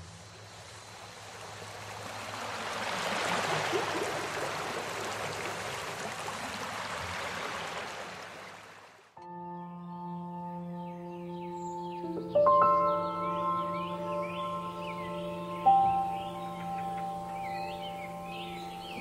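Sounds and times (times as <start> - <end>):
running water rushing: 0.0 - 9.2
soft ambient music: 9.2 - 19.0.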